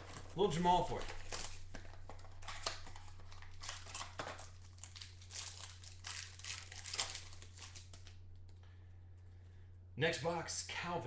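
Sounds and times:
plastic wrap crinkling: 0:00.0 - 0:08.6
steady low hum: 0:00.0 - 0:11.0.

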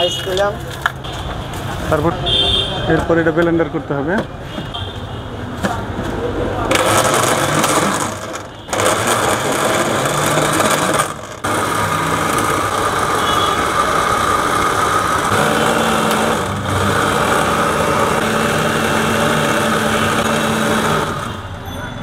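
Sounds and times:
blender motor running: 0:06.7 - 0:21.4.

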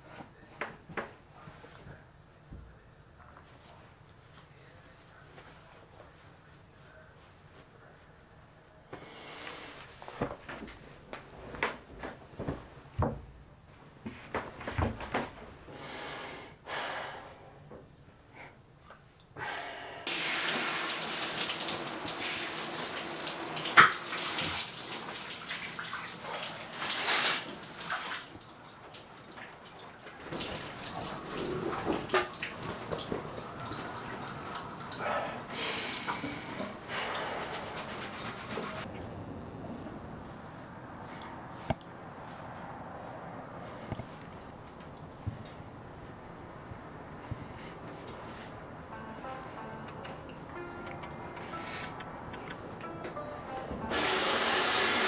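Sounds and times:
knocks and movement sounds: 0:09.5 - 0:15.6, 0:41.0 - 0:53.9
shower water spraying: 0:20.1 - 0:38.9, 0:53.9 - 0:55.0.

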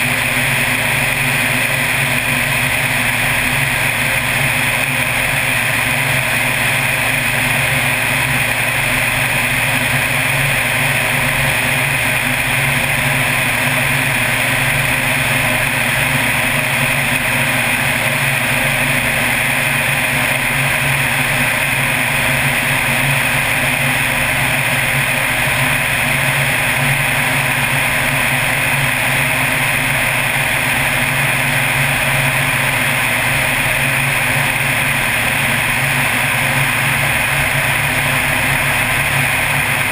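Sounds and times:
plane engine and propeller: 0:00.0 - 0:39.9.

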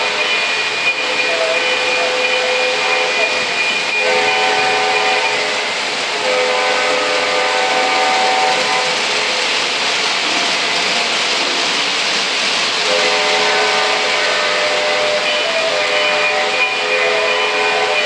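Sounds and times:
model trains rumbling on track: 0:00.0 - 0:18.0
model locomotive horn: 0:01.2 - 0:03.4, 0:04.0 - 0:09.0, 0:12.9 - 0:18.0.

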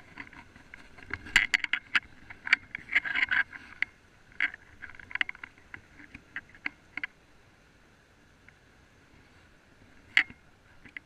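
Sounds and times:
handling clicks and scrapes: 0:00.0 - 0:07.1, 0:10.0 - 0:11.0.

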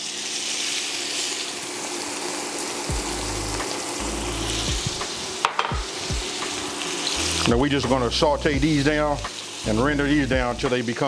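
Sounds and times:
onion sizzling in fat: 0:00.0 - 0:11.0
low thumps: 0:04.6 - 0:05.1.

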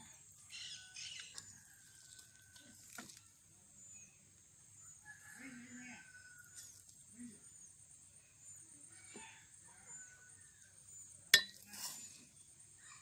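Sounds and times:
spoon clinking against pot: 0:11.4 - 0:11.9
metal spoon scraping rice in pot: 0:11.4 - 0:12.3.

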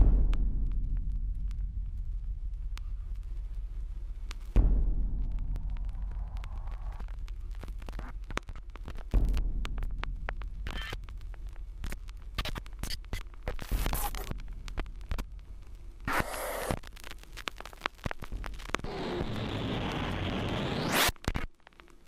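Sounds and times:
low hum: 0:00.0 - 0:21.0
irregular crackling clicks: 0:04.2 - 0:04.6, 0:05.2 - 0:22.0
scratchy bursts of noise: 0:05.2 - 0:22.0.

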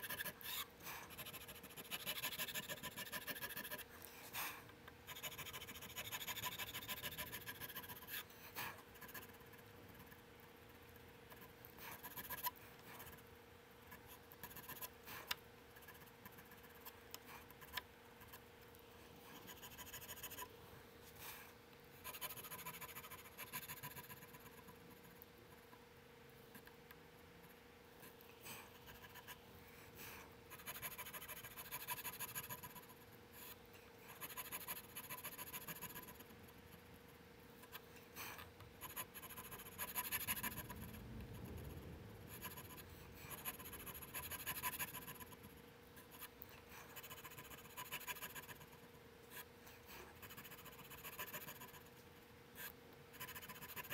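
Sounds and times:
tool scratching wood: 0:00.0 - 0:03.9
faint steady hum: 0:00.0 - 0:53.9.

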